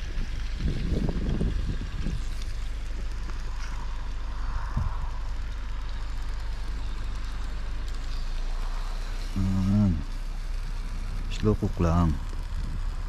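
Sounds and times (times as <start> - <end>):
steady hiss: 0.0 - 13.0
wind rumbling on microphone: 0.0 - 13.0.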